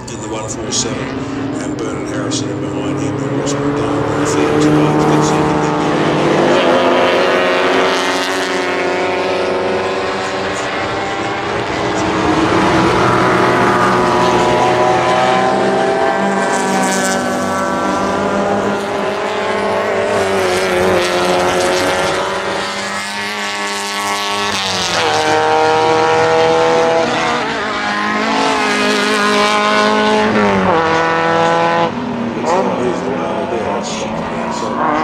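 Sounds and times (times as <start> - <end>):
racing cars accelerating past: 0.0 - 35.0.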